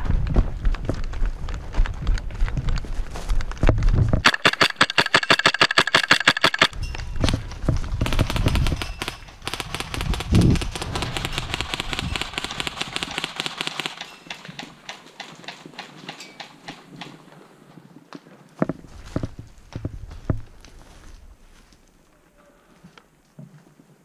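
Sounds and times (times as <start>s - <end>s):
airsoft guns firing rapidly: 4.2s - 6.8s, 8.0s - 14.3s.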